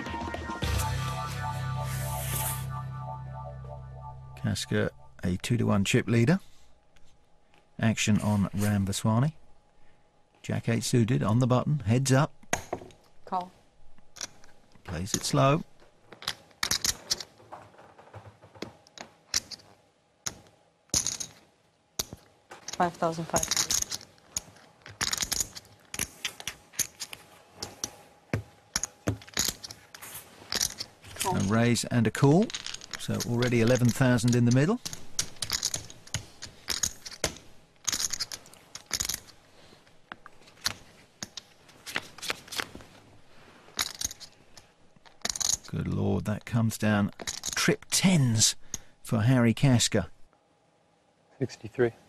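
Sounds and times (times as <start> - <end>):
poker chips clicking: 16.2 - 17.3, 23.4 - 27.2, 30.5 - 31.4, 32.4 - 39.4, 43.8 - 44.3.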